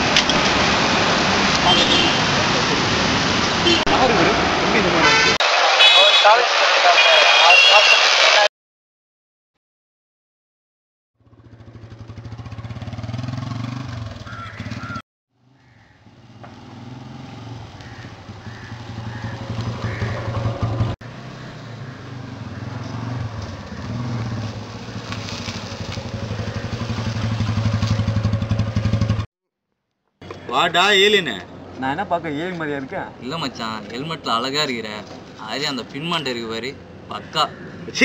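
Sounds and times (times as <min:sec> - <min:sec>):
motorcycle engine approaching: 0:11.2 - 0:29.3.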